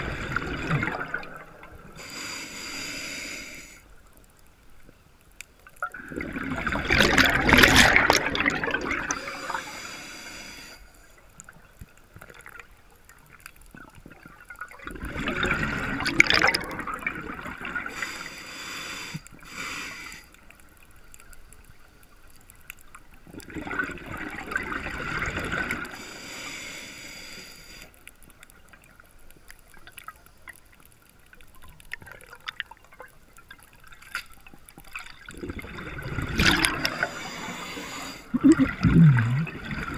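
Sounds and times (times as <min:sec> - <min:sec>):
exhaled bubbles underwater: 0:00.0 - 0:02.0, 0:05.8 - 0:09.6, 0:13.8 - 0:18.0, 0:23.3 - 0:26.0, 0:34.8 - 0:39.9
regulator hiss: 0:02.0 - 0:03.9.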